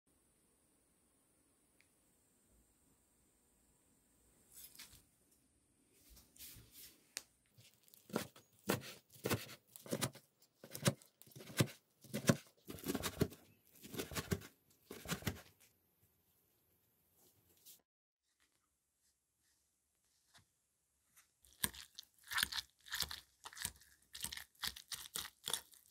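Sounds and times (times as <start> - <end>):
knife chopping on wooden board: 8.1 - 15.4.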